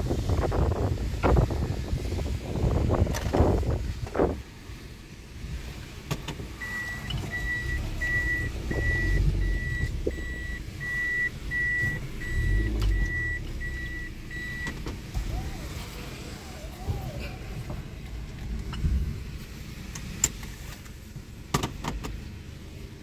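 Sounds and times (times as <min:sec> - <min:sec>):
low car rumble: 0:00.0 - 0:23.0
car warning beeps: 0:06.6 - 0:15.4.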